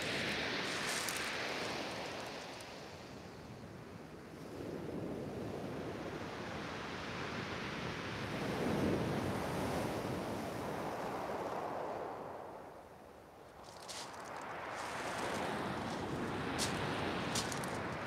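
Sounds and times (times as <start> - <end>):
waves breaking on shingle beach: 0.0 - 3.5, 13.6 - 18.0.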